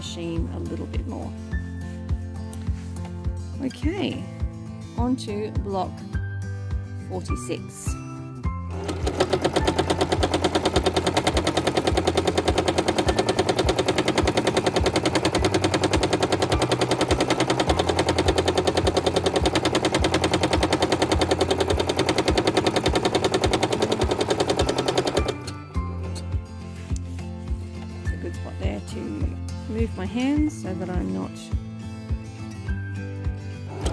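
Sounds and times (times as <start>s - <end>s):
sewing machine stitching: 8.7s - 26.2s.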